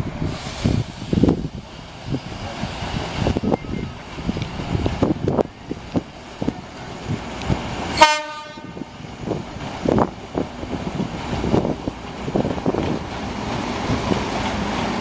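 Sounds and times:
train horn blast: 8.0 - 9.0.

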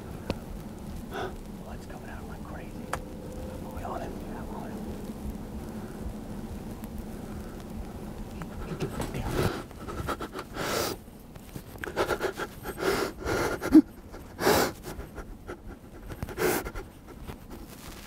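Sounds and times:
man panting: 1.1 - 1.4, 8.4 - 11.0, 11.8 - 17.7.

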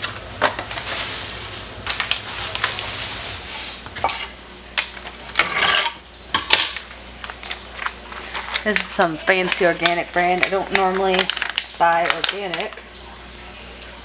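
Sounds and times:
crinkly rustle: 0.0 - 5.4, 6.9 - 14.0
utensils and dishes clinking: 4.0 - 12.7.

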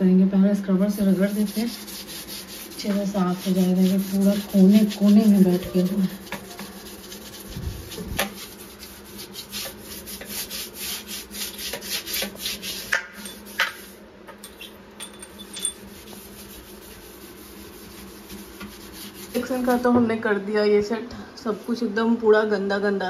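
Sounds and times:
scouring pad scrubbing tiles: 0.8 - 14.0, 15.6 - 19.9.

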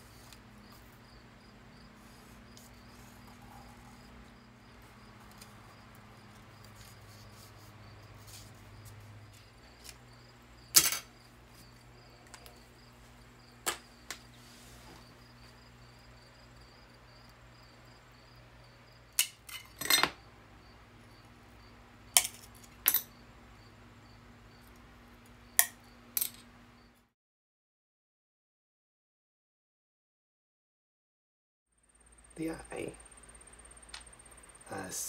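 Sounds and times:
faint low hum: 0.0 - 26.8.

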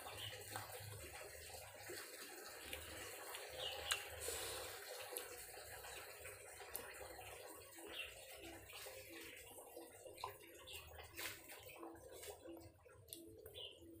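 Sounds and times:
wet chewing: 2.6 - 4.3, 4.9 - 5.4.

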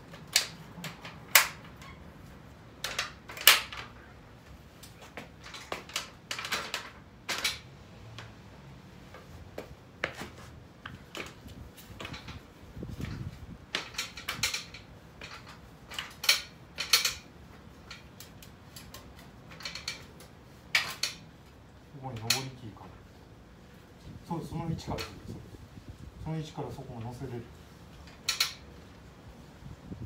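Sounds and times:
metal ladder clanks: 4.9 - 7.7, 11.0 - 21.3, 22.0 - 22.7, 28.0 - 28.6.

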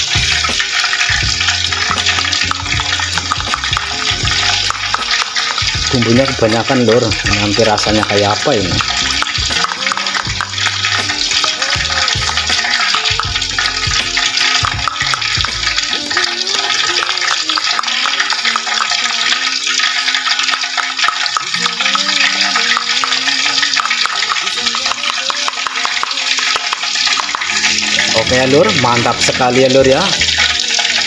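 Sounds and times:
oil sizzling in a wok: 0.0 - 31.0
fork whisking egg in plastic: 12.6 - 28.9.

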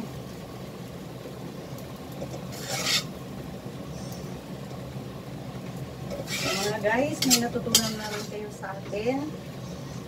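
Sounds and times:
metal spatula scraping pan: 2.3 - 3.2, 6.1 - 8.6.

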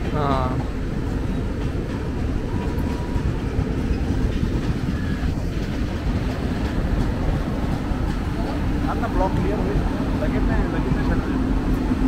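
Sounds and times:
passenger train rolling past: 0.0 - 12.0.

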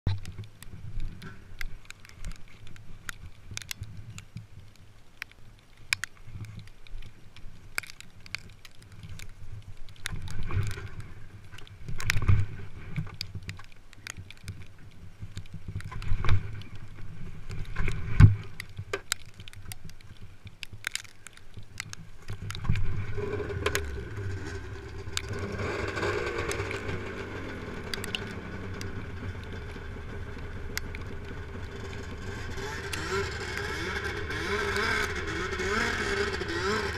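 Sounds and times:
handling clicks and rustling: 0.1 - 36.9
snowmobile engine running: 22.8 - 36.9.

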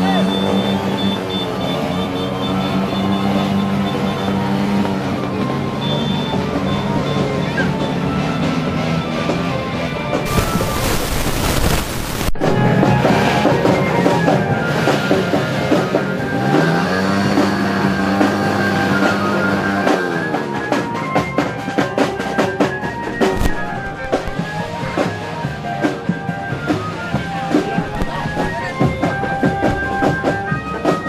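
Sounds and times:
marching drum band playing: 12.4 - 31.0.

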